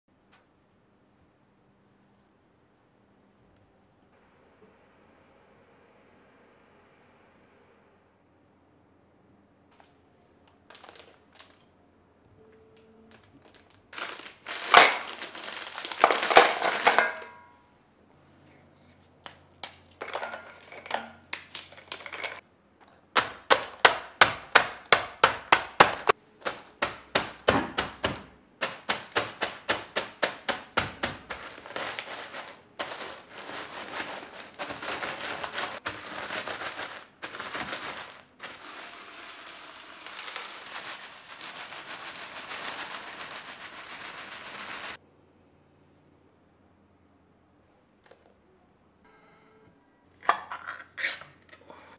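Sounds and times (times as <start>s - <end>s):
plastic bag crinkling: 10.6s - 11.7s, 13.1s - 17.2s, 28.6s - 45.0s
biscuits crushed with thuds and crunches: 13.9s - 17.0s, 23.1s - 38.6s
crumbs poured into metal bowl: 31.3s - 45.0s.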